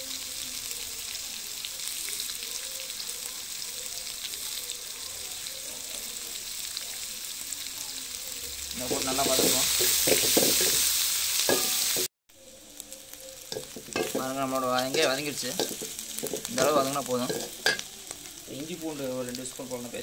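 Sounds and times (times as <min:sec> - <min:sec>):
vegetables sizzling in hot oil: 0:00.0 - 0:20.0.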